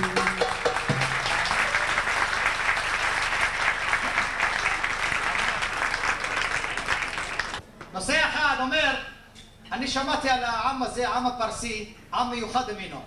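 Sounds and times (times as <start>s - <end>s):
last musical note: 0.0s - 1.4s
audience applauding: 0.0s - 7.6s.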